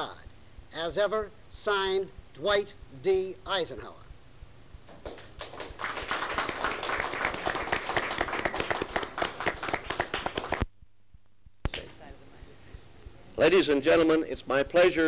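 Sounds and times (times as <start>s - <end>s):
crowd applauding: 5.0s - 10.6s.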